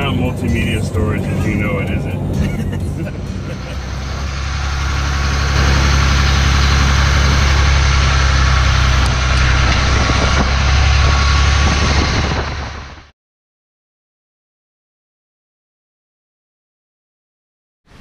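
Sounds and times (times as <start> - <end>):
road and wind noise: 0.0 - 13.1
truck engine and tyres drone: 0.0 - 13.1.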